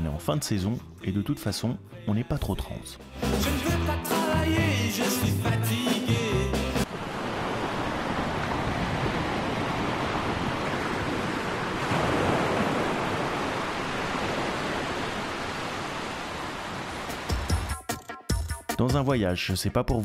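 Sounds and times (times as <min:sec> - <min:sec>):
small waves washing on sand: 0:06.9 - 0:17.5.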